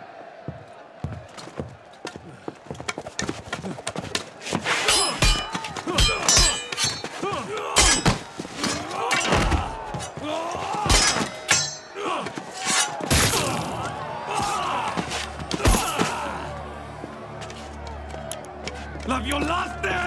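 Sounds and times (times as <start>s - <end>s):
metallic sword clangs: 4.9s - 7.2s, 7.8s - 9.4s, 10.9s - 12.0s
music: 13.8s - 20.0s.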